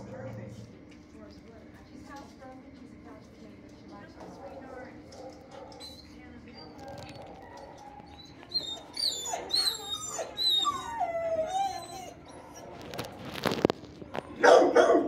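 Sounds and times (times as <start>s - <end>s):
dogs whining and yelping: 5.7s - 12.8s
dog barking loudly: 14.4s - 15.0s.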